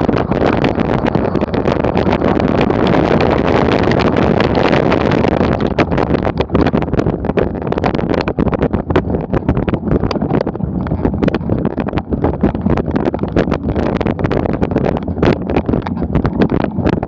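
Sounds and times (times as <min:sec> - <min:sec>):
bike rattling over bumps: 0:00.0 - 0:17.0
tyres rumbling on dirt: 0:00.0 - 0:17.0
wind buffeting microphone: 0:00.0 - 0:17.0.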